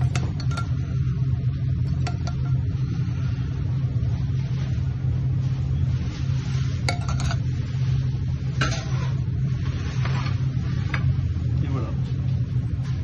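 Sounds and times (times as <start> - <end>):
utensils clinking on porcelain plate: 0.0 - 0.8
steady low hum: 0.0 - 13.0.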